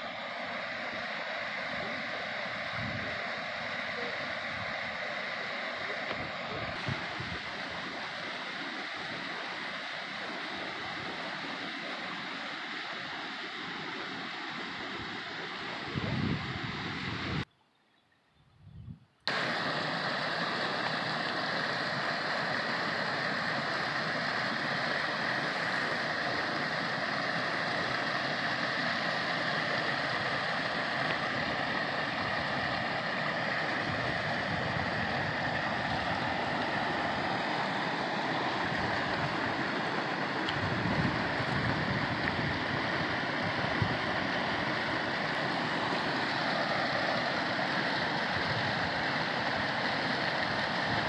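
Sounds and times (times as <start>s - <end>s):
water rushing over rocks: 0.0s - 17.4s, 19.3s - 51.0s.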